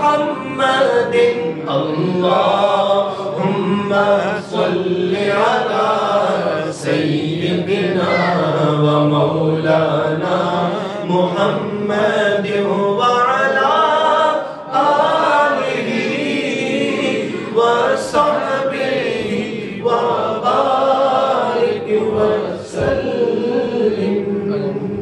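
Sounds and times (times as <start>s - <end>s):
man chanting into microphone: 0.0s - 14.8s.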